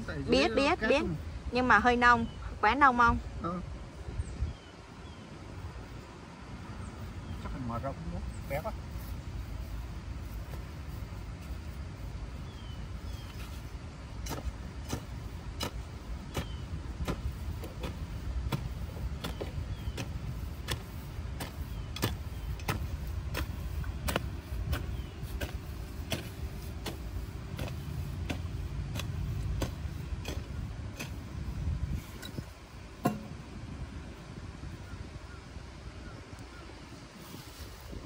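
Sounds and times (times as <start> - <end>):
steady low rumble: 0.0 - 37.0
digging tool striking soil: 13.1 - 33.4.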